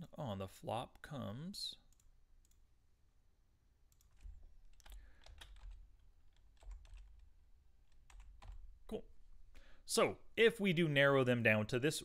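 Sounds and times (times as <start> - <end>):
faint computer keyboard typing: 1.9 - 2.7, 3.9 - 8.8.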